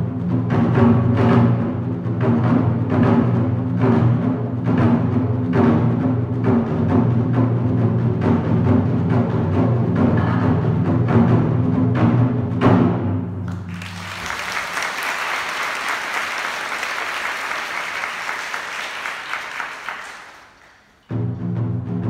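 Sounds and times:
wind band and taiko drum: 0.0s - 16.2s, 21.1s - 22.0s
audience applause: 13.5s - 21.1s.

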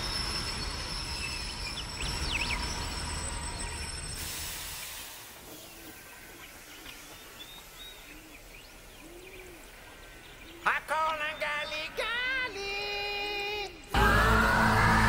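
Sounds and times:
steam locomotive venting steam: 0.0s - 10.2s
faint outdoor ambience: 0.0s - 15.0s
soft bird chirps: 4.8s - 12.2s
loud yelled voice: 10.7s - 15.0s.

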